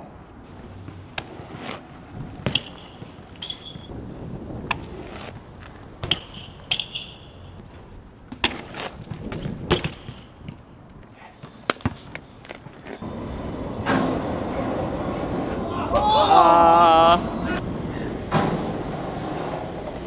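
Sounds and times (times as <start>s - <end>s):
bike tyres rolling on concrete: 0.2s - 20.0s
bike clacks and knocks: 2.3s - 3.9s, 4.6s - 10.6s.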